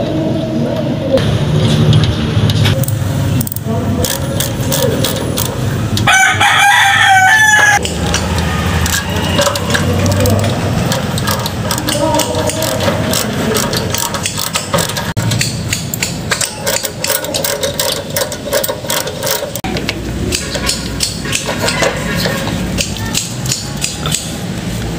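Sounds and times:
ratchet and metal parts clinking: 2.8 - 6.1, 7.6 - 24.3
rooster crowing: 6.0 - 7.8.

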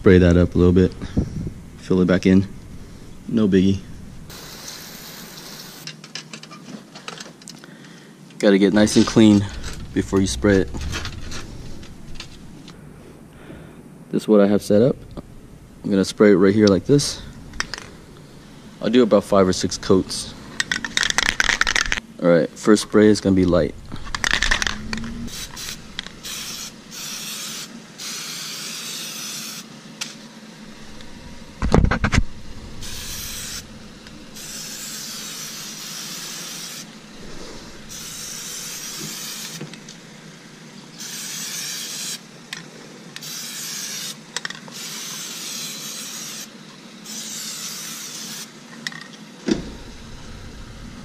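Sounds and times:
aerosol spray can hissing: 4.3 - 5.9, 25.3 - 29.7, 32.8 - 39.8, 41.0 - 42.2, 43.2 - 46.5, 47.1 - 48.5
loud thump: 8.8 - 13.4, 30.8 - 34.4, 49.5 - 51.0.

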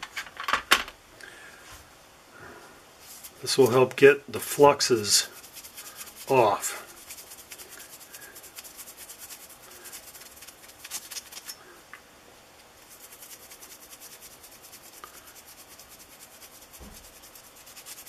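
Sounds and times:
paper towel rubbing metal: 3.0 - 3.8, 4.4 - 11.6, 12.8 - 18.0.

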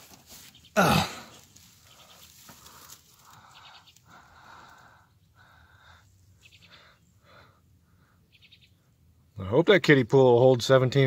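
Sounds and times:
man breathing hard: 2.5 - 8.2.

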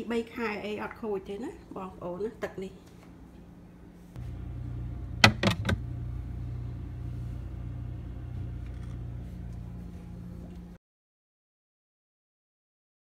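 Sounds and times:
refrigerator humming: 3.5 - 10.8.

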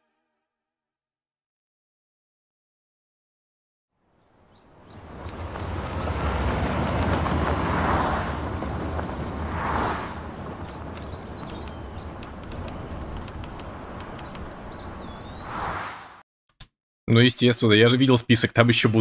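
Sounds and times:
small birds chirping: 4.2 - 6.5, 8.3 - 15.6
rushing wind-like noise: 4.9 - 16.0.

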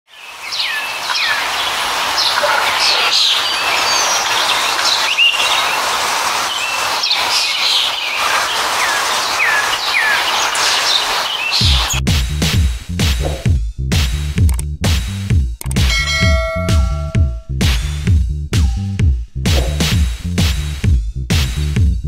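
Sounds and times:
birds chirping: 0.1 - 12.0, 16.0 - 17.4.

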